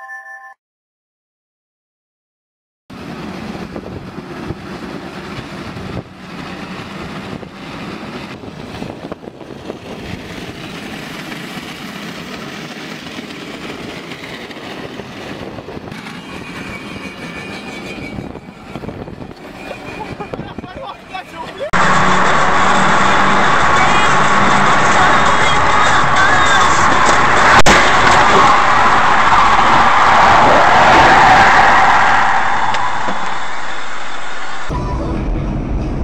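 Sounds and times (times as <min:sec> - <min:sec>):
metal scraping along road: 0:15.8 - 0:30.2.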